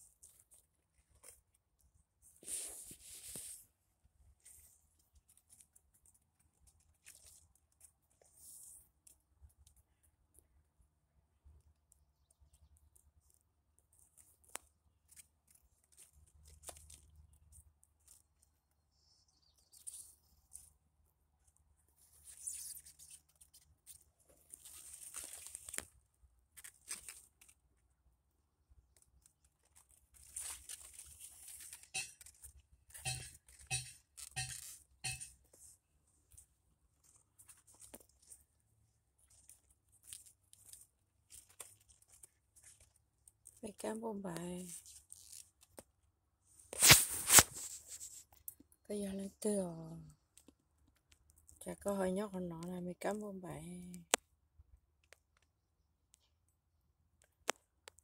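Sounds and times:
scratchy rustle with small clicks: 0:00.0 - 0:10.5, 0:11.6 - 0:18.8, 0:19.6 - 0:27.8, 0:28.8 - 0:48.8
rustling of large leaves: 0:22.0 - 0:27.6, 0:29.6 - 0:32.4.

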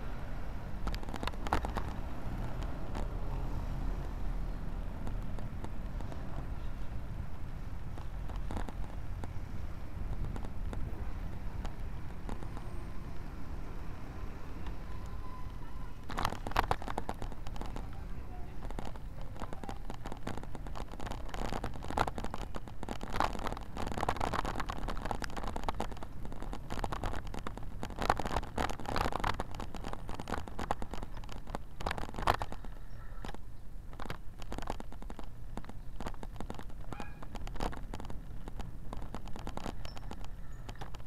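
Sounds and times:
camera clicking and rattling: 0:07.2 - 0:09.3, 0:16.0 - 0:17.9.

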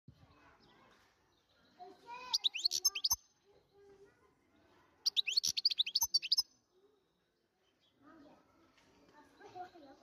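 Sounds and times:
finch twittering song: 0:01.4 - 0:03.4, 0:05.0 - 0:06.6.

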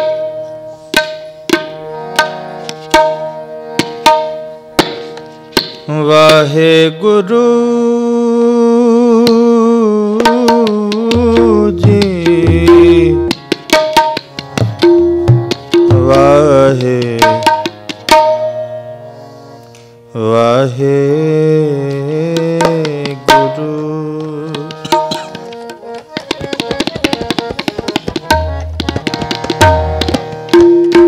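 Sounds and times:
harmonium melody: 0:00.0 - 0:31.0
tabla strokes and bass thumps: 0:00.9 - 0:05.9, 0:10.2 - 0:16.4, 0:24.6 - 0:31.0.

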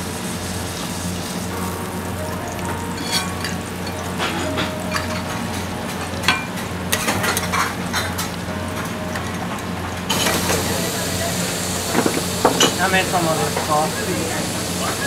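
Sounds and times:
griddle sizzling: 0:00.0 - 0:15.0
metal spatulas scraping griddle: 0:03.0 - 0:03.6.

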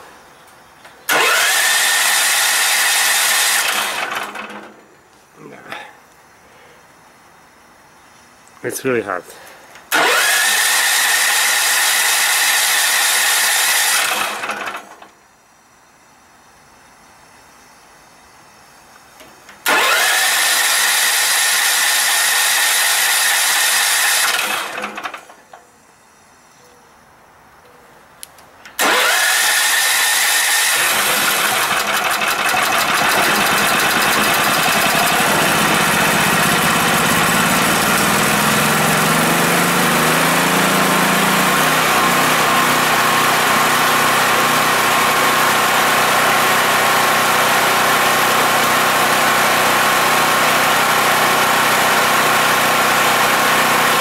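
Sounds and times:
generator engine running: 0:01.0 - 0:05.8, 0:09.0 - 0:15.1, 0:19.4 - 0:25.6, 0:28.8 - 0:54.0
starter motor cranking: 0:01.1 - 0:04.8, 0:09.9 - 0:15.0, 0:19.6 - 0:25.4, 0:28.7 - 0:45.7.

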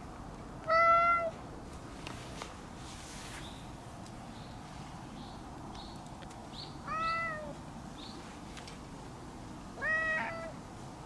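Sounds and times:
cat meowing: 0:00.7 - 0:01.4, 0:06.8 - 0:07.6, 0:09.8 - 0:10.6.

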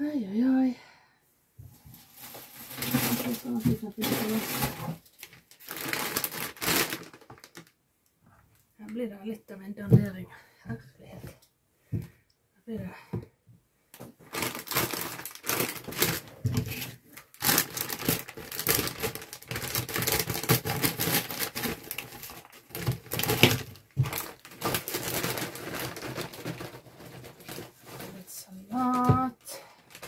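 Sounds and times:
plastic bag crinkling: 0:01.9 - 0:07.8, 0:14.2 - 0:30.0
salad leaves shaken out: 0:02.0 - 0:04.8
scissors cutting plastic: 0:14.6 - 0:28.2.

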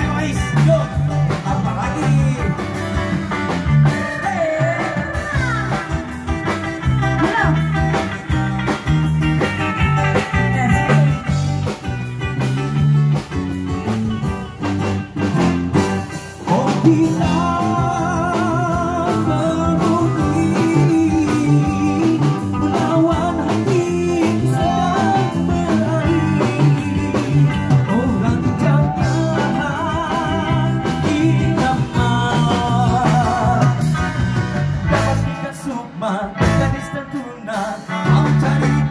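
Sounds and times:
person singing into microphone: 0:00.0 - 0:03.1, 0:03.9 - 0:06.2, 0:16.4 - 0:34.2, 0:34.9 - 0:38.9
live pop band: 0:00.0 - 0:38.9.

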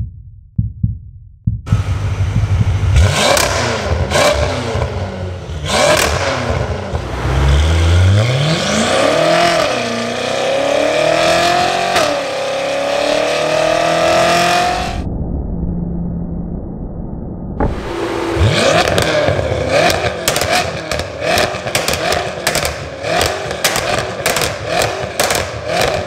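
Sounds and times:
exhaust cracks: 0:01.7 - 0:10.8, 0:17.6 - 0:26.0
car engine revving under load: 0:01.7 - 0:15.0, 0:17.6 - 0:26.0.

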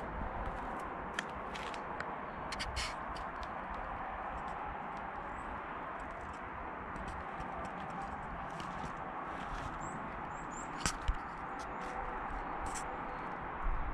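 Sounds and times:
small birds chirping: 0:08.1 - 0:12.0.

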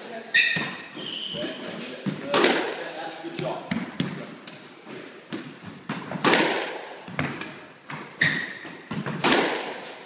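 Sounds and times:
shoe squeak on wooden floor: 0:00.3 - 0:02.0, 0:08.2 - 0:08.9
squash ball cracking off walls: 0:02.0 - 0:02.8, 0:05.3 - 0:09.8.

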